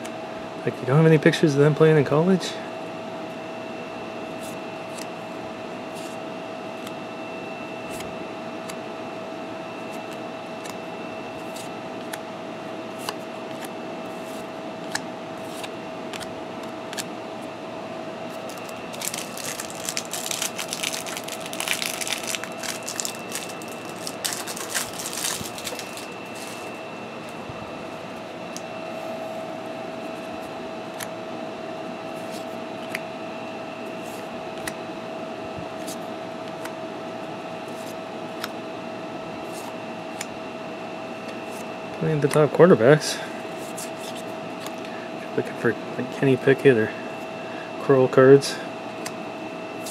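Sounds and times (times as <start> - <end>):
steady hum with faint whine: 0.0 - 49.9
cardboard crinkling and rustling: 18.4 - 26.7.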